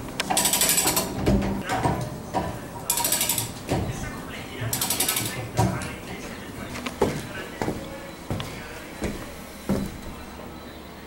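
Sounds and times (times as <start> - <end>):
ratchet clicking rapidly: 0.3 - 1.1, 2.9 - 3.6, 4.7 - 5.4.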